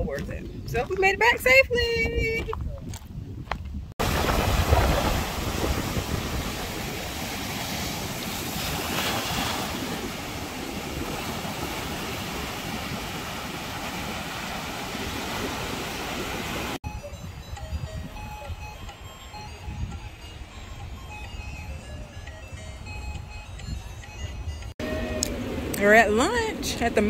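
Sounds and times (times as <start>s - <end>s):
wind rumbling on microphone: 0.0s - 27.0s
ocean surf breaking: 4.0s - 16.8s.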